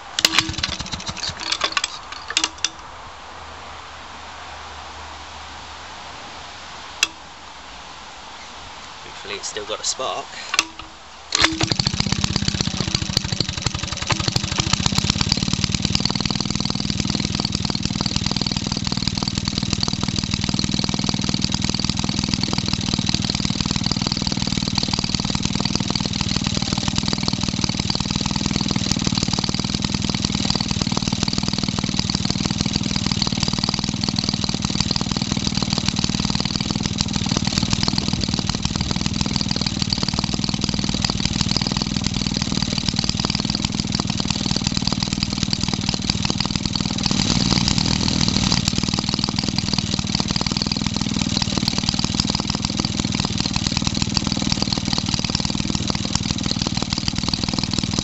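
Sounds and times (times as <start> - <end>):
two-stroke engine running: 0.0 - 2.9, 7.0 - 7.3, 9.1 - 58.0.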